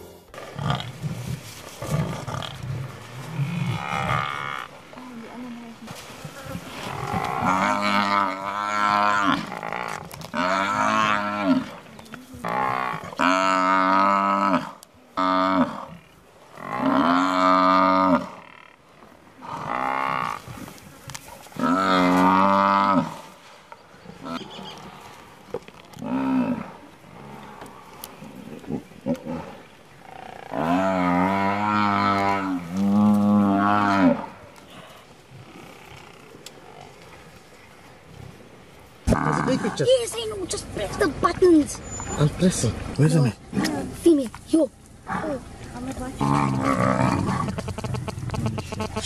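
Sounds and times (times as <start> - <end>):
buffalo bellowing: 6.3 - 18.8, 21.5 - 23.3, 26.0 - 34.5, 39.0 - 40.0, 46.1 - 49.0
low rumbling: 23.9 - 49.0.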